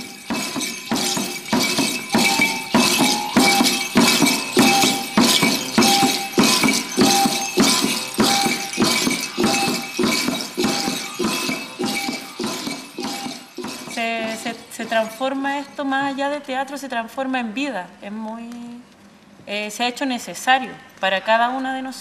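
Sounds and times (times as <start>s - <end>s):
bright jingle: 0.0s - 15.8s
hand drum beaten with a stick: 0.3s - 14.6s.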